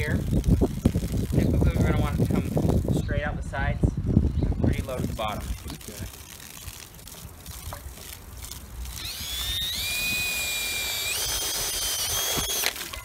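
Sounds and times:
water splashing from hose: 0.0 - 3.6, 4.7 - 13.0
cordless drill whining: 8.4 - 13.0.

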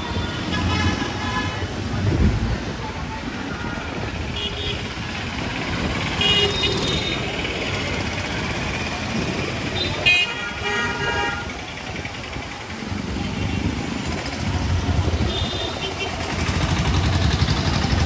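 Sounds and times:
traffic engine noise: 0.0 - 18.0
vehicle horns: 4.2 - 5.1, 6.0 - 7.6, 9.7 - 11.6, 15.0 - 16.7.

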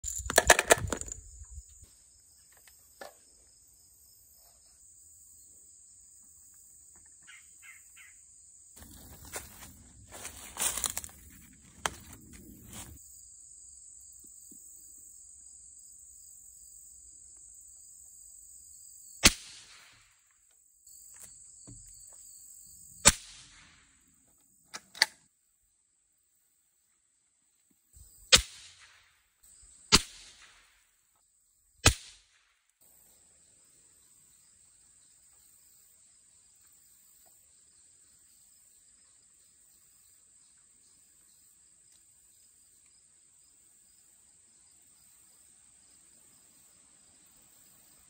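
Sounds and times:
rustling through leaves: 8.8 - 13.0.

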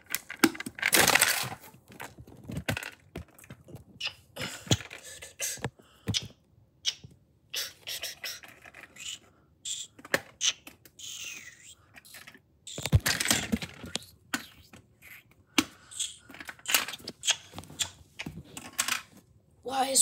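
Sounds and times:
plastic bricks clicking: 0.0 - 5.1.

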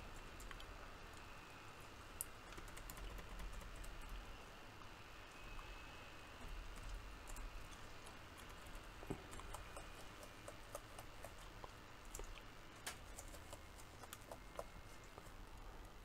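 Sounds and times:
laptop keyboard clicks: 2.5 - 4.1.

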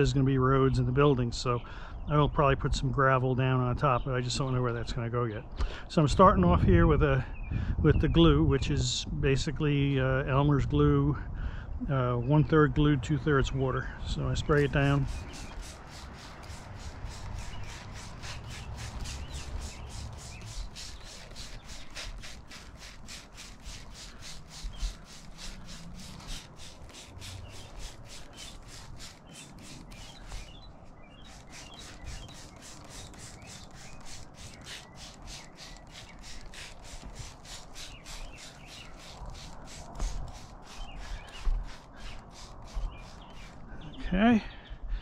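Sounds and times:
spray bottle squirting: 14.5 - 43.7.

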